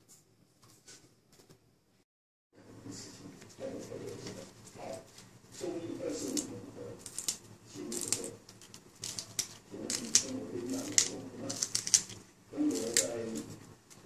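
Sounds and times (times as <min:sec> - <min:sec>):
plant stems snapping: 0:06.2 - 0:13.5.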